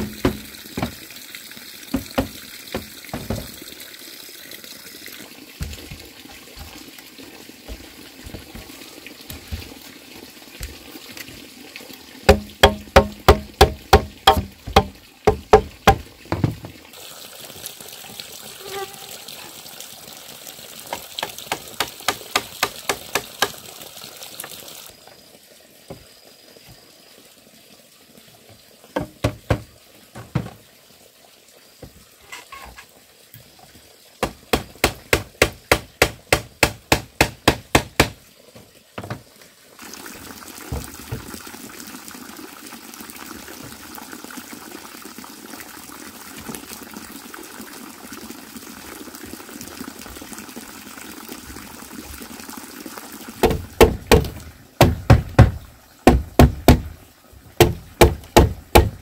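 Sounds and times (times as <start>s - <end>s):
chopping strikes on bamboo: 0.0s - 1.0s, 12.3s - 16.5s, 21.2s - 23.6s, 34.2s - 38.2s, 53.4s - 56.9s, 57.6s - 59.0s
watery hiss: 16.9s - 33.6s.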